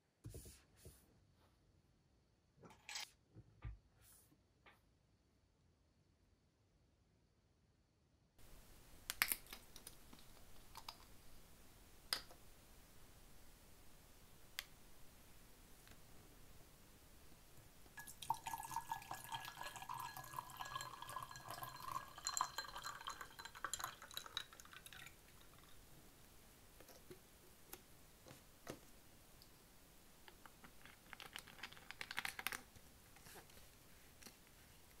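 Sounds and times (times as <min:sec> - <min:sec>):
faint tones of filling glass: 0:17.9 - 0:26.1
tea pouring into a glass: 0:18.0 - 0:25.8.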